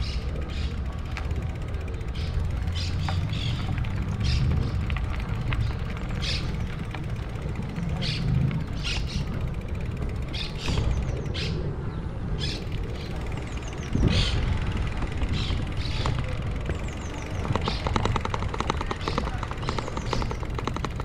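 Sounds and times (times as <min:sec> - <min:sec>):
wind and tyre rumble: 0:00.0 - 0:21.0.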